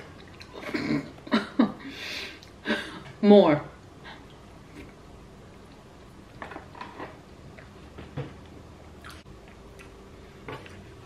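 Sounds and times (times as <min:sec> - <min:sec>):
person chewing with mouth smacks: 0:09.0 - 0:10.9.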